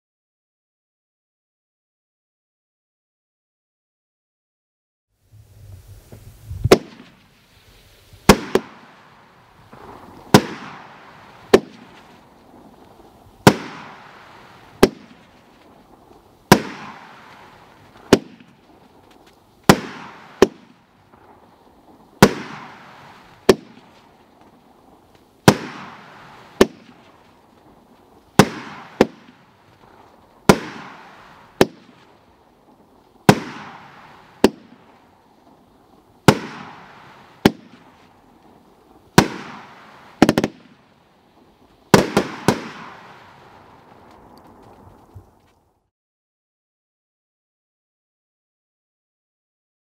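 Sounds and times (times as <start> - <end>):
firework hiss: 5.2 - 45.4
firework bangs: 5.9 - 45.4.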